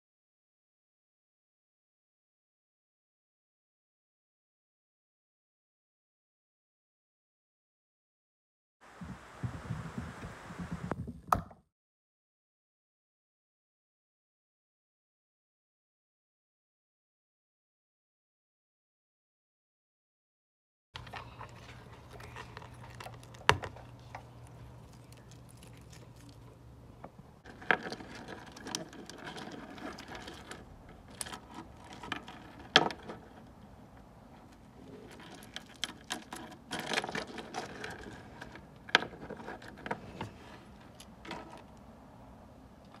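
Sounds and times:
steady low hum: 21.0s - 32.6s.

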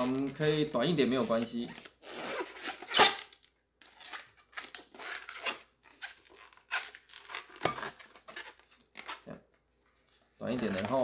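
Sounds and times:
balloon squeaking and rubbing: 0.0s - 3.4s, 4.0s - 9.4s.

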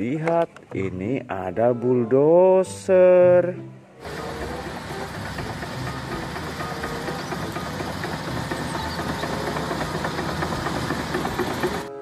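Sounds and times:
diesel engine running: 4.0s - 12.0s
steel tracks clattering: 4.0s - 12.0s.

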